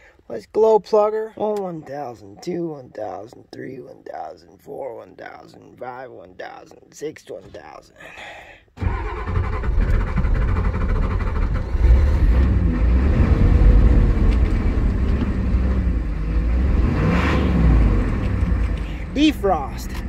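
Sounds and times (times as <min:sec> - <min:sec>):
diesel engine starting and running: 0:08.8 - 0:20.0.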